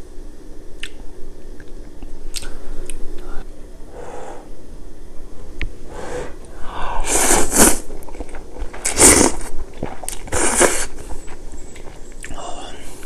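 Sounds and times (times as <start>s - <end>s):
slurping noodles: 6.0s - 11.1s.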